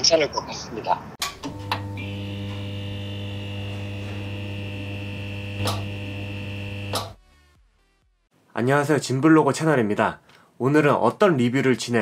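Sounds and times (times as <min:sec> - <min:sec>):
neon sign electrical hum: 0:01.2 - 0:07.2
electrical crackle: 0:01.5 - 0:07.2.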